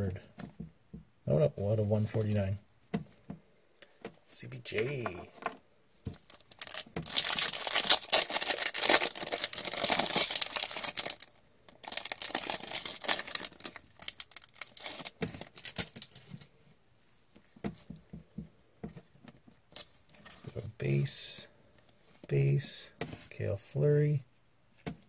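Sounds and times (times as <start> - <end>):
wrapper tearing and crinkling: 6.3 - 16.2.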